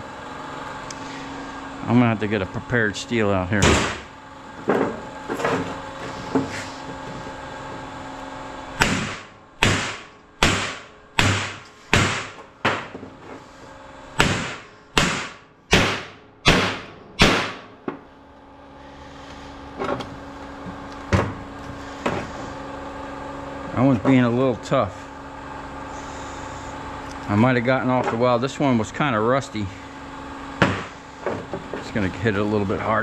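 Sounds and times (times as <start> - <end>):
hammer striking steel: 8.8 - 12.4, 14.2 - 17.7.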